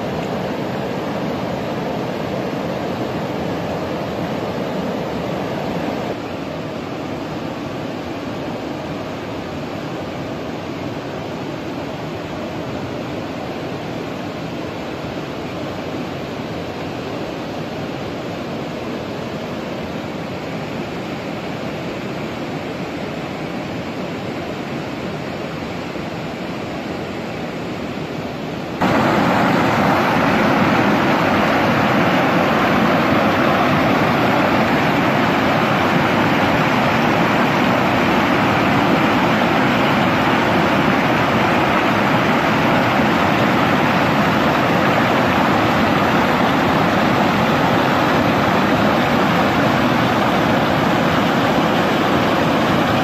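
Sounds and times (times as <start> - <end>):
flooded river pouring over rocks: 0.0 - 11.4, 24.5 - 53.0
steady rushing noise: 0.0 - 53.0.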